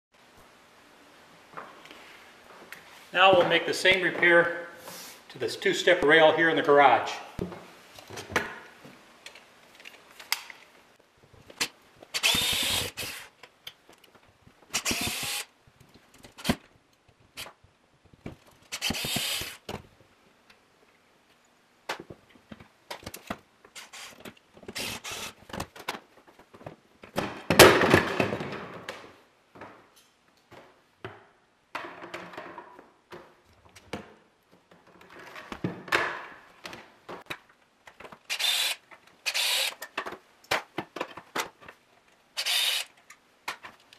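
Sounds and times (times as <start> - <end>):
electric drill driving screws: 12.1 - 13.3, 14.7 - 15.5, 18.7 - 19.6, 23.8 - 25.4, 38.3 - 39.8, 42.4 - 43.0.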